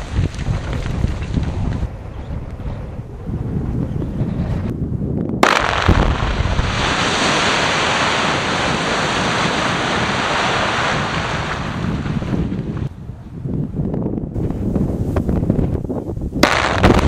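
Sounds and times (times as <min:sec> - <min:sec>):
wind buffeting microphone: 0:00.0 - 0:17.0
blast crack: 0:05.4 - 0:12.1, 0:16.4 - 0:17.0
rock face rushing collapse: 0:05.4 - 0:12.7.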